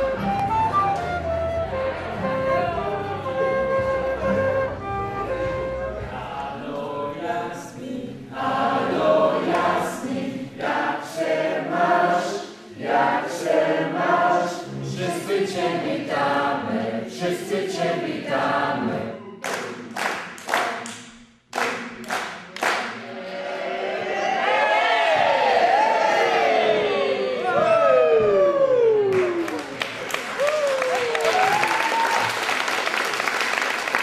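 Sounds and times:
group singing unaccompanied: 6.0s - 19.3s
sharp claps: 19.4s - 23.0s.

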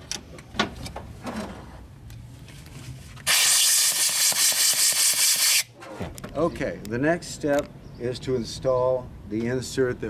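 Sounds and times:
compressed air hissing from blow gun: 3.3s - 5.7s.

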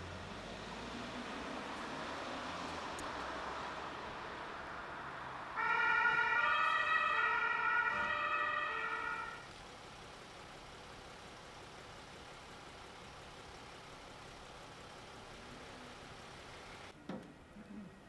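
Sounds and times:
street and engine hum: 0.0s - 18.0s
two-tone siren: 5.6s - 9.4s.

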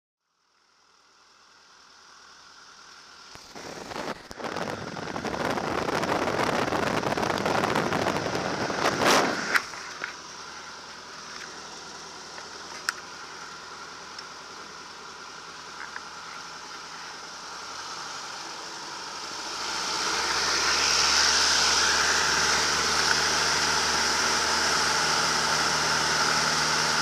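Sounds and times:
biplane engine running: 3.3s - 27.0s
propeller wind buffeting microphone: 3.5s - 10.1s.

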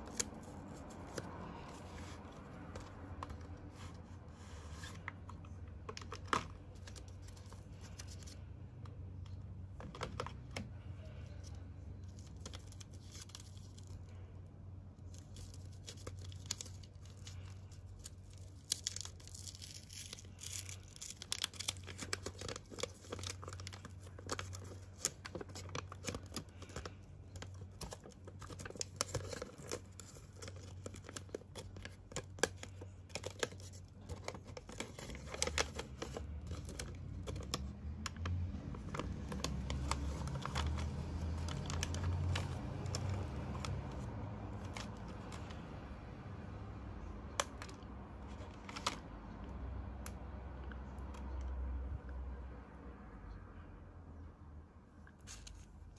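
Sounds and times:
foil and paper wrappers crinkling: 15.1s - 45.6s.

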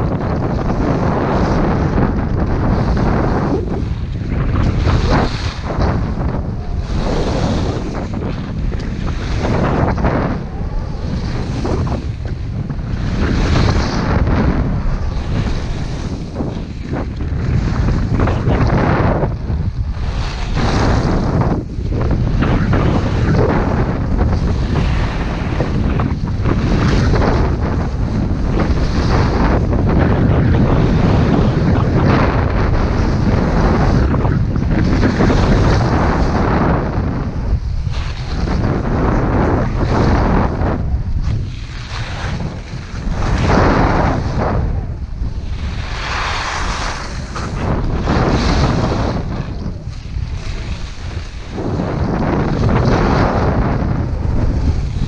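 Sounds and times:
wind rushing over microphone: 0.0s - 55.0s
skis sliding over snow: 2.8s - 10.4s, 12.9s - 19.0s, 37.9s - 40.4s, 41.2s - 44.6s, 45.5s - 53.9s
skis scraping on packed snow: 41.2s - 44.6s, 45.5s - 53.6s.

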